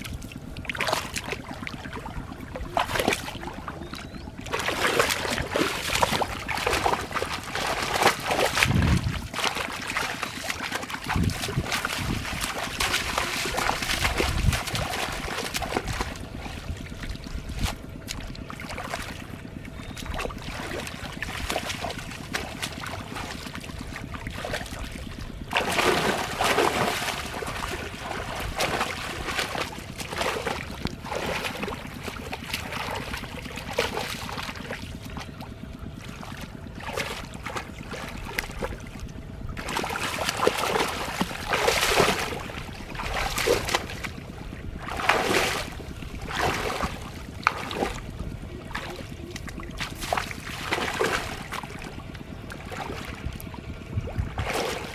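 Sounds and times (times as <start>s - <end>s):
bare feet wading in water: 0.0s - 54.9s
muddy water splashing: 0.0s - 54.9s
wind rumble on microphone: 5.2s - 10.4s, 11.0s - 33.5s, 41.0s - 54.9s.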